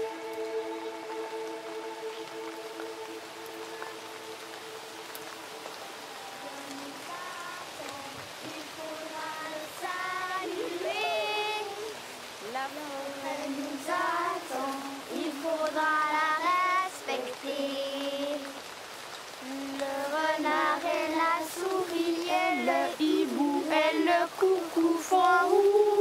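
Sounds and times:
young children singing: 0:06.4 - 0:18.6, 0:19.4 - 0:26.0.

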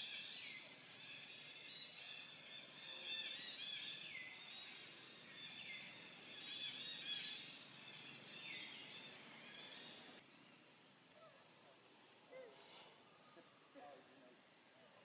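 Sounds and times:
birds chirping and twittering: 0:00.0 - 0:11.7.

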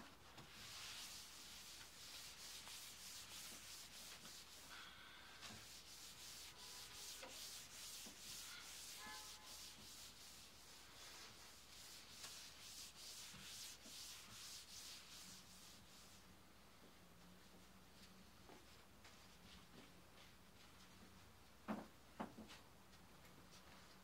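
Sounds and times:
paper towel rubbing on tabletop: 0:00.4 - 0:04.8, 0:05.4 - 0:16.2.

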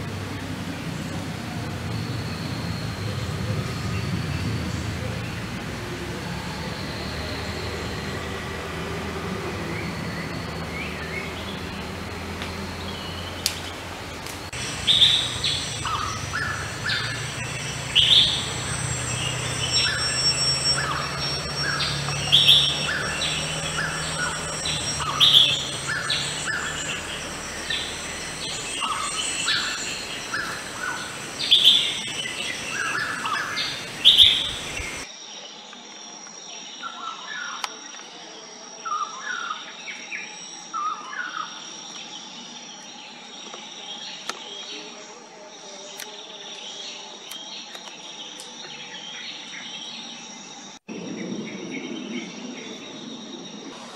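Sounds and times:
birds calling: 0:00.0 - 0:35.1.

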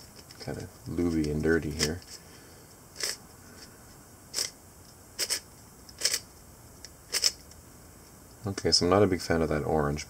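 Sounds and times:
puzzle cube layers clacking: 0:05.2 - 0:05.4, 0:06.0 - 0:06.2, 0:07.1 - 0:07.4.

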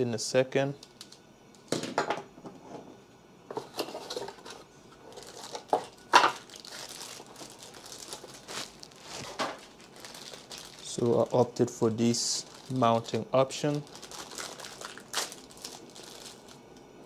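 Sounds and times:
plastic bag crinkling: 0:05.0 - 0:16.7.

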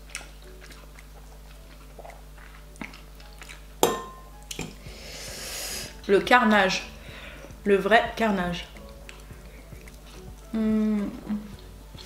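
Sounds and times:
soft chewing: 0:00.0 - 0:04.9, 0:08.4 - 0:12.0
metal fork clinking glass bowl: 0:03.8 - 0:04.2.

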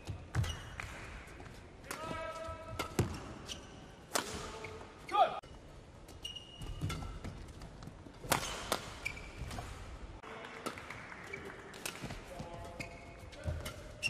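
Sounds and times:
shoes squeaking: 0:00.0 - 0:00.8, 0:02.2 - 0:09.8, 0:12.0 - 0:14.0
racket hitting shuttlecock: 0:01.8 - 0:04.7, 0:06.1 - 0:09.8, 0:11.7 - 0:12.4.

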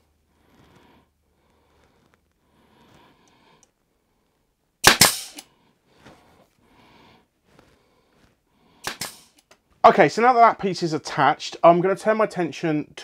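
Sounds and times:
nail gun firing crack: 0:04.8 - 0:05.4, 0:08.8 - 0:09.4.

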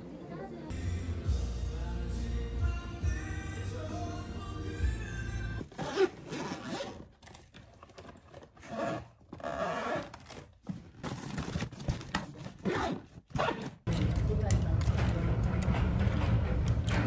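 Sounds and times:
background music: 0:00.0 - 0:05.6
suitcase zipper pulled: 0:05.6 - 0:13.8.

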